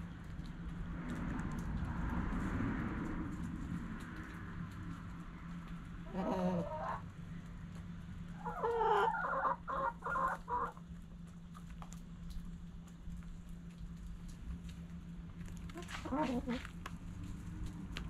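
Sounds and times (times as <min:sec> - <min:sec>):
hens clucking: 0:06.0 - 0:07.1, 0:08.3 - 0:10.8, 0:15.7 - 0:16.8.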